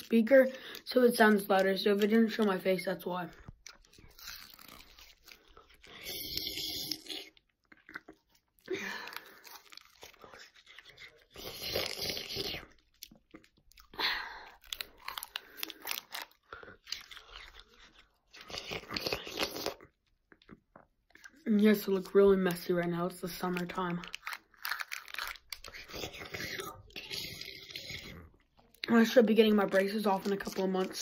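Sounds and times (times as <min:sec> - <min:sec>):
crunching close to microphone: 0:03.3 - 0:06.4, 0:23.3 - 0:28.9.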